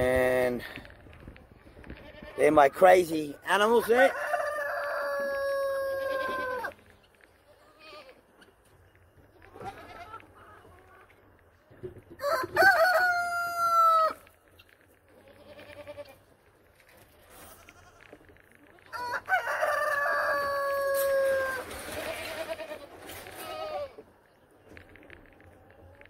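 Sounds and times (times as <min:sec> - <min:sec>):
rooster crowing: 0:04.0 - 0:06.6, 0:12.2 - 0:14.2, 0:18.9 - 0:21.7
goat calls: 0:05.6 - 0:06.8
chicken clucking: 0:09.4 - 0:12.0.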